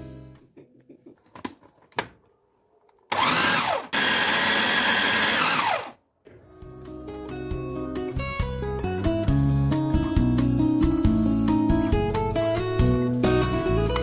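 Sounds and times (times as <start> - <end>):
food chopper motor whine: 3.1 - 6.0.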